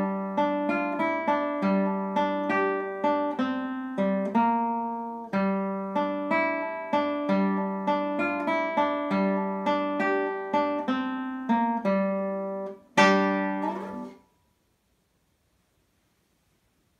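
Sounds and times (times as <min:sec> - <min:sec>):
acoustic guitar plucked notes: 0:00.0 - 0:14.3
guitar chord struck: 0:00.0 - 0:14.3.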